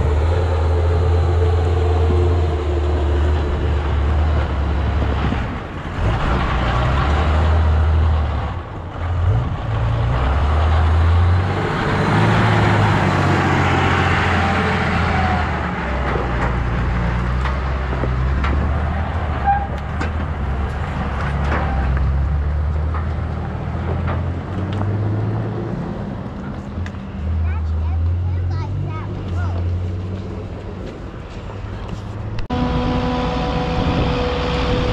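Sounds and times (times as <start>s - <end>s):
wind rumbling on microphone: 15.6s - 26.0s, 30.1s - 34.9s.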